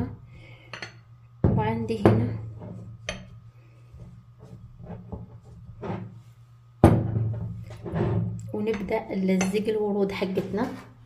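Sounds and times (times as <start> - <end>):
teapot knocking on table: 6.8 - 7.5.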